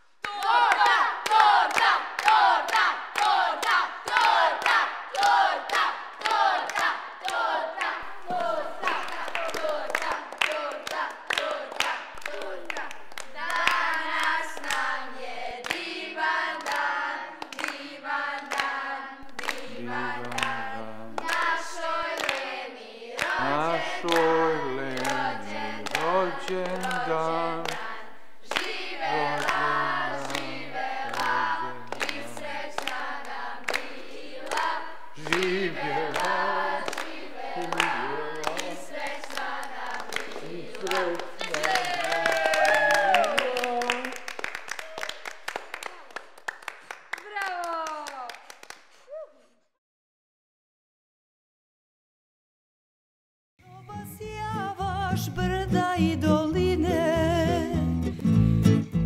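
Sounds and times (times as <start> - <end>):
rhythmic hand clapping: 0.2 - 49.0, 58.0 - 59.0
group singing a birthday song: 0.3 - 42.5.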